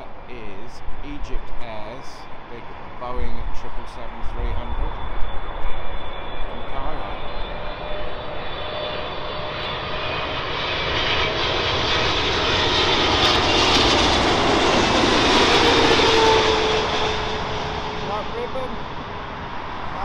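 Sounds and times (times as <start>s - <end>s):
jet airliner passing overhead: 0.0s - 20.0s
jet engine whine: 0.0s - 20.0s.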